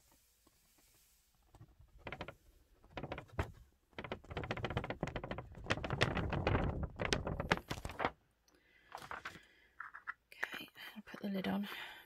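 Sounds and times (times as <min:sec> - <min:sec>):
paper rustling and crackling: 0:01.4 - 0:08.2, 0:08.9 - 0:09.4.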